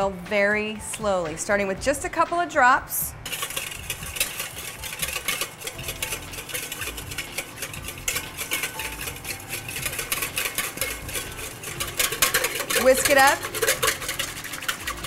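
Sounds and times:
whisk beating in metal bowl: 3.2s - 15.0s.

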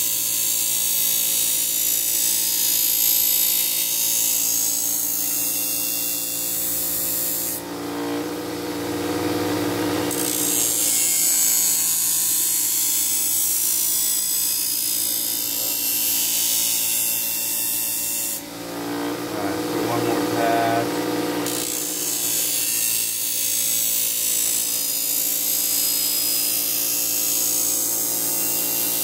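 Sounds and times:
bench grinder running: 0.0s - 29.0s.

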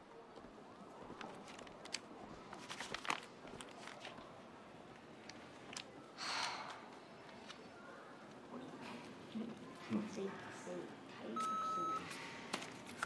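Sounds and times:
paper crinkling: 1.0s - 4.4s.

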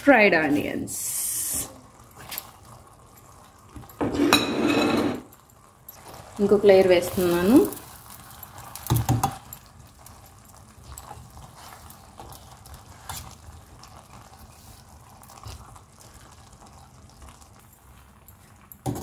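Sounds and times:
rice clicks and rustling: 5.8s - 19.0s.

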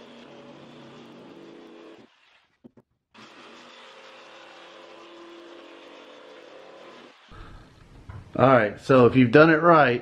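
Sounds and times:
jigsaw cutting plywood: 0.0s - 7.4s.

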